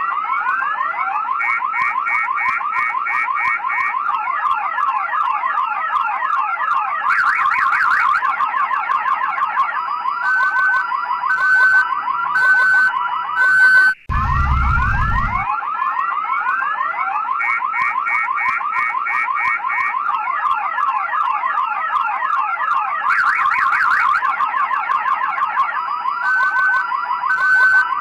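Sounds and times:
car alarm siren: 0.0s - 28.0s
low rumble: 14.1s - 15.5s.

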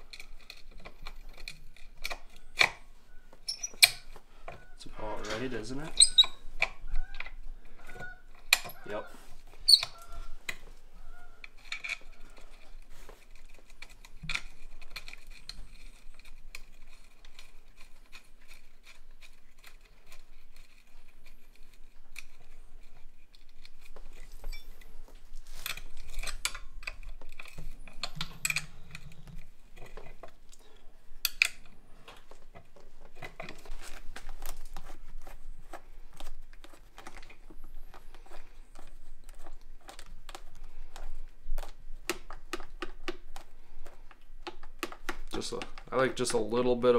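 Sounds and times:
metallic clicks of hand tools: 31.2s - 31.8s.

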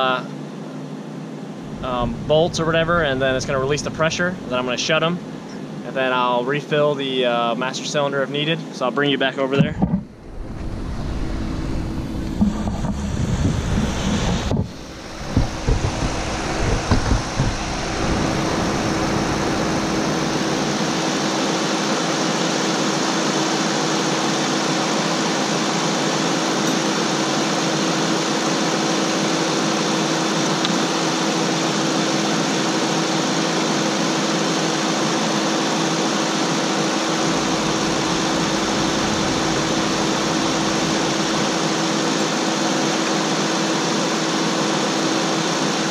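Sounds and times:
car engine fan whirring: 0.0s - 45.9s
wind buffeting microphone: 1.6s - 4.8s, 9.6s - 21.2s.

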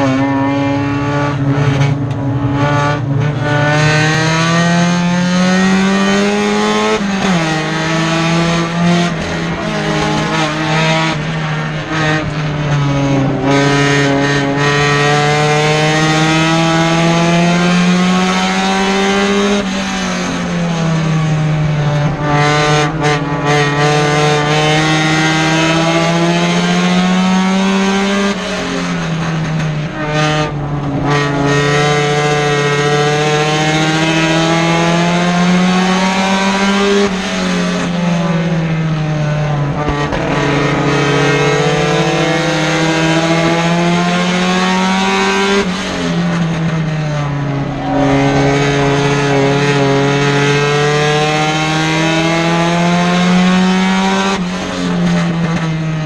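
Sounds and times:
race car engine revving: 0.0s - 56.0s
road and tire noise: 0.0s - 56.0s.

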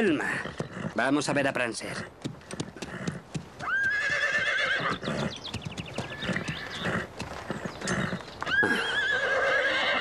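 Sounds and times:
hooves clopping at a walk: 0.0s - 10.0s
horse whinnying: 3.0s - 5.4s, 6.1s - 10.0s.

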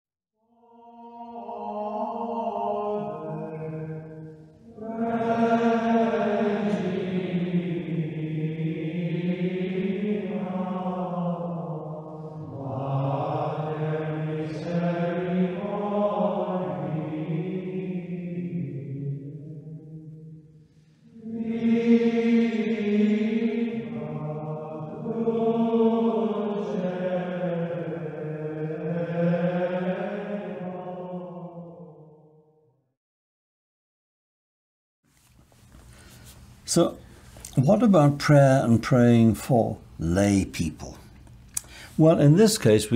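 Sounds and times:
voices singing plainchant: 0.8s - 19.9s, 21.1s - 32.0s.

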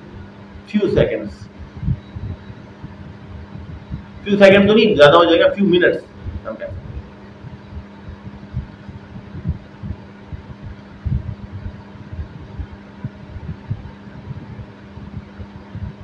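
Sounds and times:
steady low hum: 0.0s - 16.0s
low thumps: 6.1s - 16.0s.

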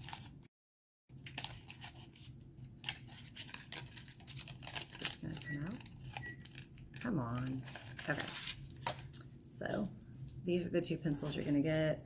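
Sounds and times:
packaging rustling: 1.1s - 9.4s.

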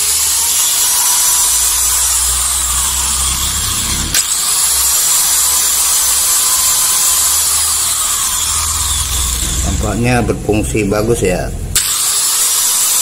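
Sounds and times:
angle grinder motor whine: 0.0s - 13.0s
sharp click: 4.1s - 4.4s.

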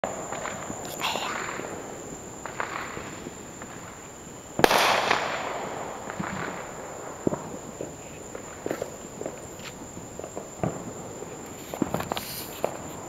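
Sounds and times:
loud firework bang: 4.6s - 7.5s.

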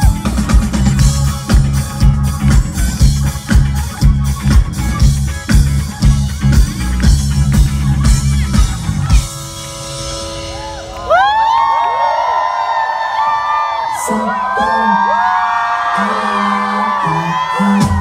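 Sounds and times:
crowd cheering and whooping: 0.0s - 5.3s, 9.9s - 18.0s
live rock band playing loudly: 0.0s - 11.4s.

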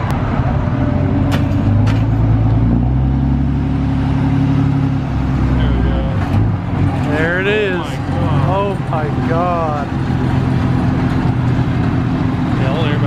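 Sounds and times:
truck engine working hard: 0.0s - 13.0s.

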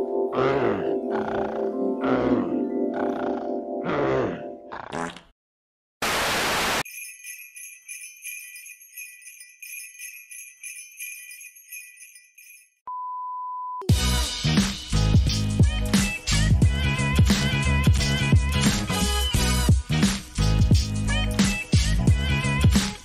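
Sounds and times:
sleigh bells jingling: 6.8s - 12.8s
funky music: 13.8s - 23.0s.

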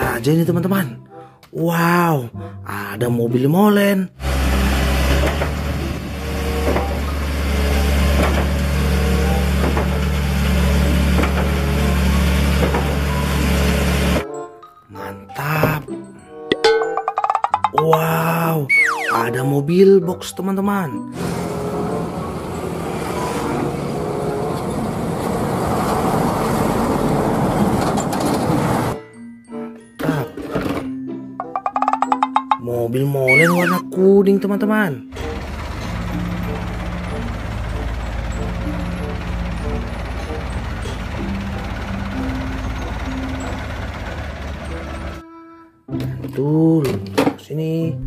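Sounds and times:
diesel engine running: 4.2s - 14.2s, 21.0s - 29.0s, 35.1s - 45.2s
road noise: 4.2s - 14.2s, 21.0s - 29.0s, 35.1s - 45.2s.

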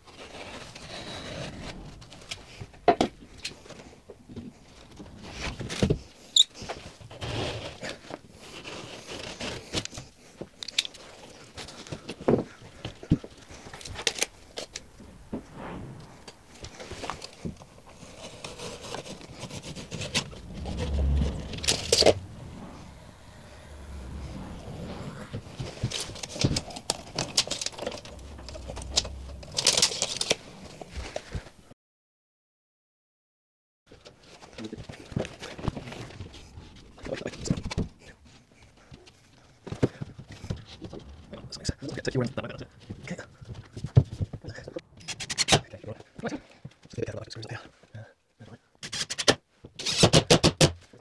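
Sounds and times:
low rumble: 1.0s - 3.4s, 14.4s - 17.2s, 19.3s - 30.8s.

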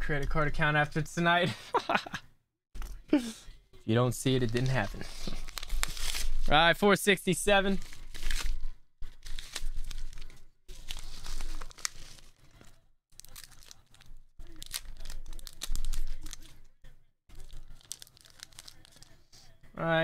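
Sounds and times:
paper envelope tearing: 4.4s - 6.5s, 7.8s - 16.5s.

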